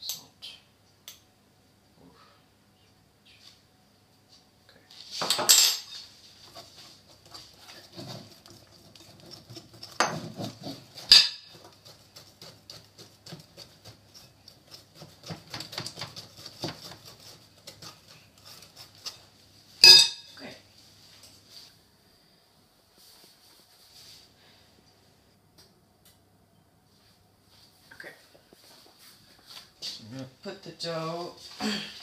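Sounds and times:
utensil stirring batter in glass bowl: 6.0 - 19.8.

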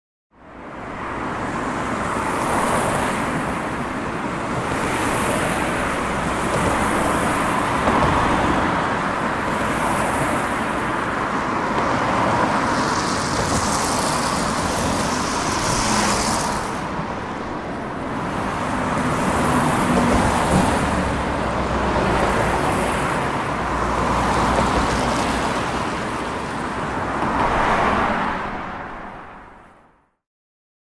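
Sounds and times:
highway vehicles passing: 0.4 - 30.1.

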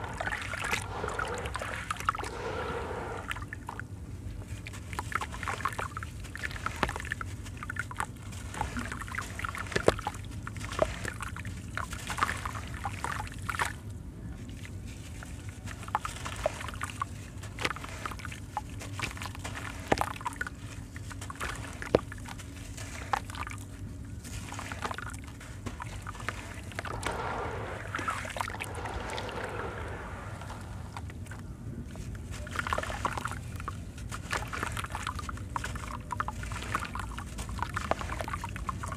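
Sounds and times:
water sloshing: 0.0 - 3.5, 24.3 - 31.4
wet sand crumbling: 0.0 - 3.5, 24.2 - 31.4
sand and water pouring: 0.0 - 3.8, 18.8 - 38.9.

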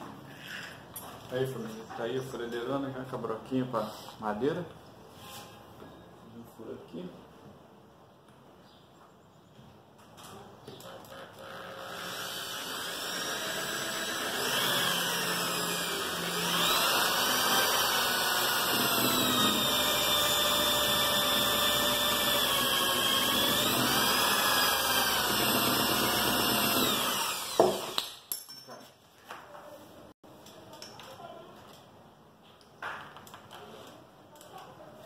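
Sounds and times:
electric drill boring wood: 10.8 - 28.0.

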